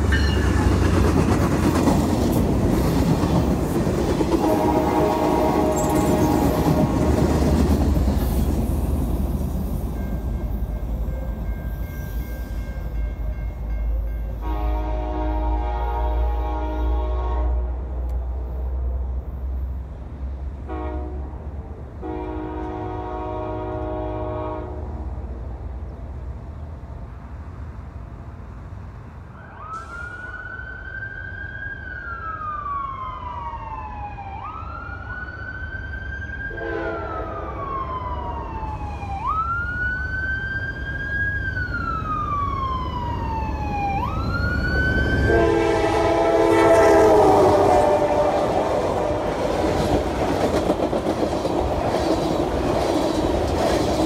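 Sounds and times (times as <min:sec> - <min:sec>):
train horn blasts: 0:04.4 - 0:07.5, 0:14.3 - 0:18.1, 0:20.6 - 0:21.4, 0:22.0 - 0:25.1, 0:36.5 - 0:37.5, 0:45.2 - 0:49.6
siren wailing: 0:29.4 - 0:49.3.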